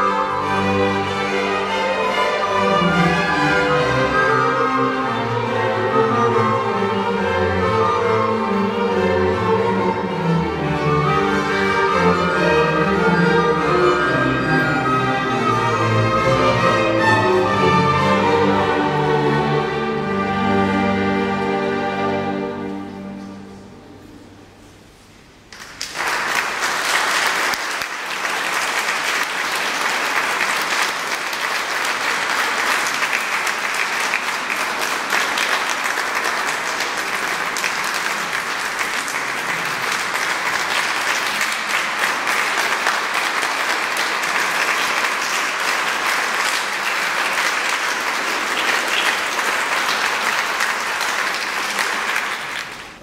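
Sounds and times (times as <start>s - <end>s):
audience applauding: 25.5s - 53.0s.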